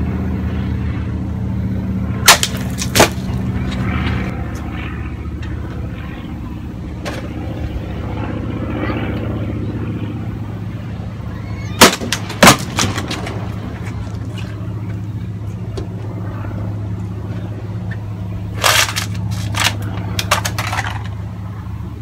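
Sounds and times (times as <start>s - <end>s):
steady low hum: 0.0s - 22.0s
blade striking plastic bottle: 2.3s - 3.3s.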